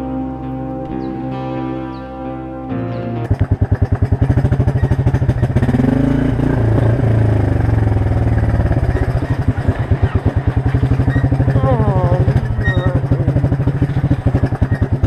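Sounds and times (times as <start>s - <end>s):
quad bike engine revving: 3.2s - 15.0s.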